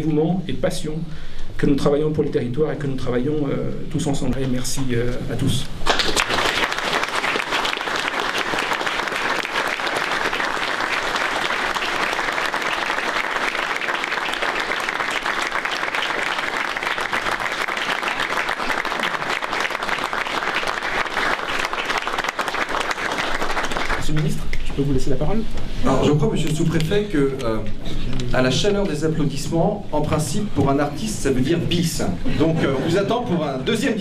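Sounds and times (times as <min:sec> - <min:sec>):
audience applauding: 0:05.8 - 0:24.5.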